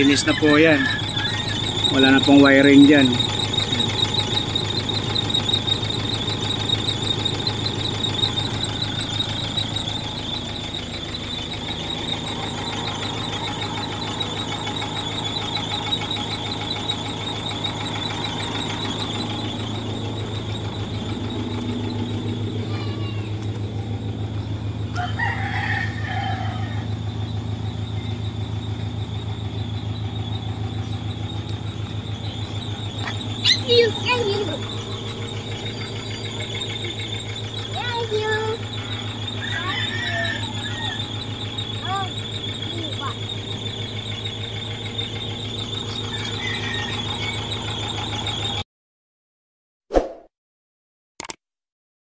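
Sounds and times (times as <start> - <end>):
rooster crowing: 0.0 - 4.1, 24.8 - 27.3, 38.2 - 41.7, 45.7 - 47.7
high-pitched whine: 0.0 - 48.1
diesel engine idling: 0.0 - 48.6.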